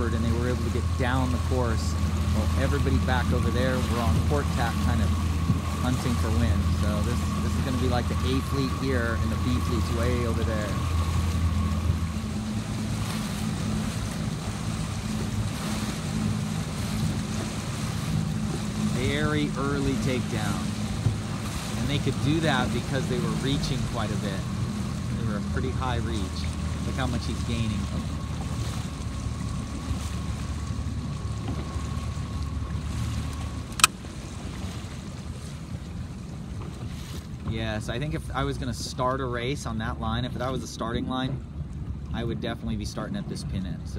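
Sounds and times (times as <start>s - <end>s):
faint steady whine: 0.0s - 34.1s
wind buffeting microphone: 0.0s - 37.6s
boat motor humming: 0.0s - 43.9s
choppy water washing: 0.0s - 43.9s
sharp click: 33.7s - 34.0s.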